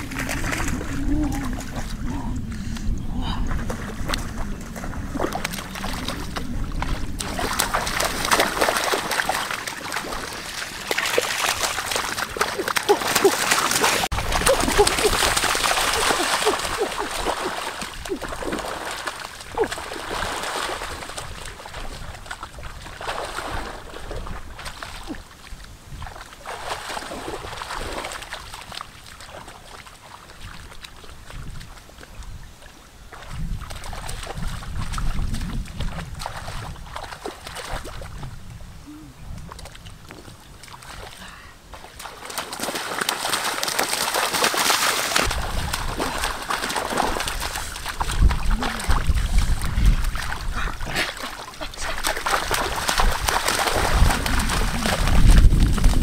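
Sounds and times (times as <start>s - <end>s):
water splashing in shallow water: 0.0s - 56.0s.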